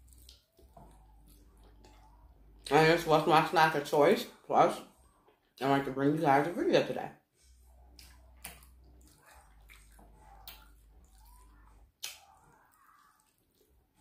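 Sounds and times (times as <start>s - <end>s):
wet chewing: 0.0s - 2.7s, 7.6s - 14.0s
sharp mouth smacks: 12.0s - 12.3s.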